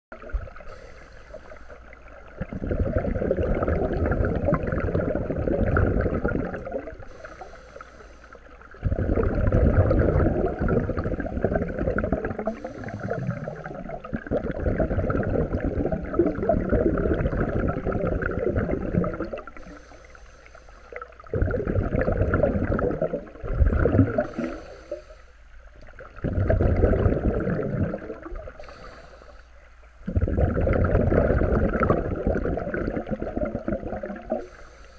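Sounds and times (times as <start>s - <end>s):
bubbling regulator exhalations: 0.2s - 7.6s, 8.4s - 19.9s, 20.9s - 25.2s, 25.9s - 29.1s, 29.9s - 34.7s
hissing inhalations: 0.7s - 1.7s, 7.1s - 8.5s, 12.4s - 13.9s, 19.6s - 21.0s, 24.2s - 25.4s, 28.6s - 29.6s, 34.4s - 34.9s.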